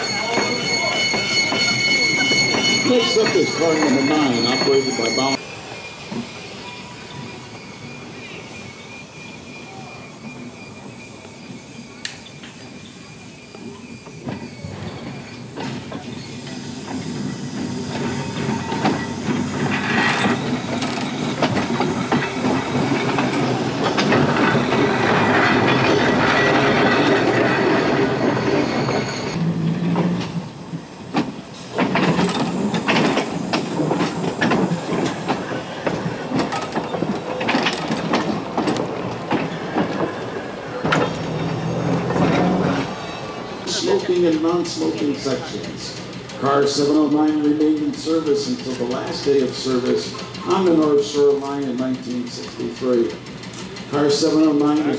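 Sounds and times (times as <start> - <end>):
electric tram rolling past: 0.0 - 54.9
wheels clicking over rail joints: 11.2 - 54.9.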